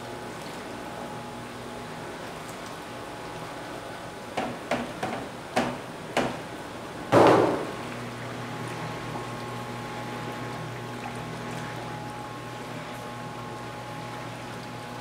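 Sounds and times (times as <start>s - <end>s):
stirring machine hum: 0.0s - 15.0s
plastic basin knocking on metal: 7.1s - 7.7s.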